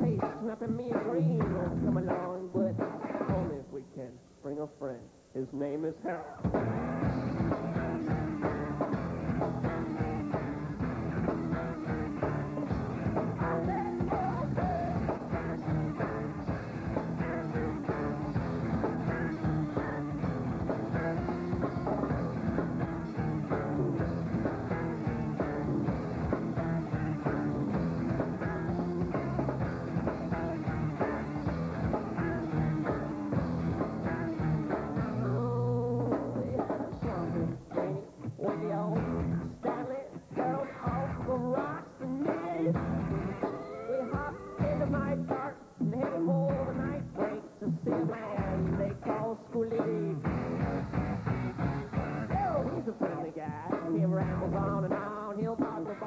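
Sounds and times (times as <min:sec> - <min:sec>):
drum beat: 0:00.0 - 0:03.6, 0:06.4 - 0:43.6, 0:44.2 - 0:56.0
rock music: 0:00.0 - 0:03.7, 0:06.3 - 0:56.0
person singing: 0:00.0 - 0:04.1, 0:07.4 - 0:50.4, 0:52.2 - 0:56.0.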